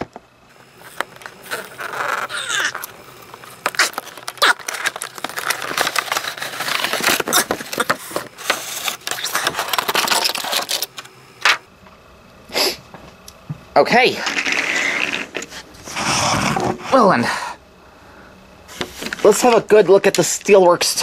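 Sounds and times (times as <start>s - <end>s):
plastic packaging rustling: 0.5s - 11.6s.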